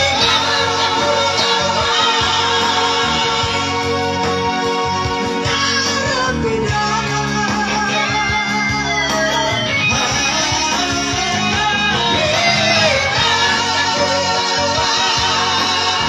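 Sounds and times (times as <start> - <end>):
guitar accompaniment: 0.0 - 16.0
men singing: 0.0 - 16.0.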